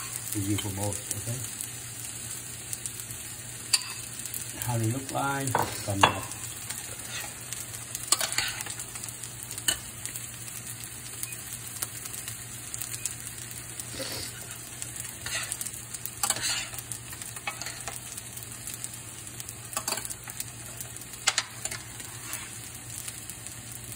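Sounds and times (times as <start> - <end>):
vegetables sizzling in a pan: 0.0 - 23.9
metal spoons scraping a pan: 3.7 - 4.1, 5.6 - 7.4, 8.1 - 8.8, 15.2 - 18.0, 21.2 - 22.6.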